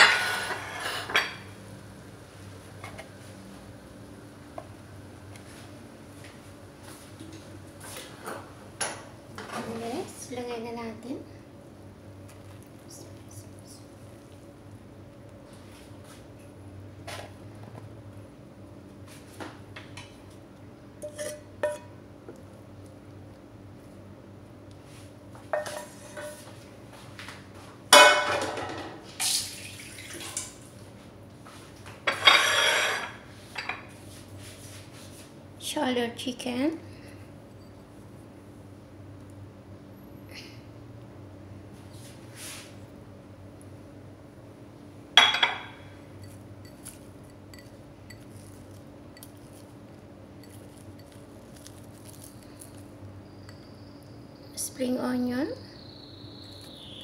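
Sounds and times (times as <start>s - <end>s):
dishes and utensils clattering: 0.0s - 1.5s, 21.0s - 21.9s, 25.6s - 26.4s, 28.0s - 29.0s, 32.1s - 33.8s, 45.2s - 48.5s.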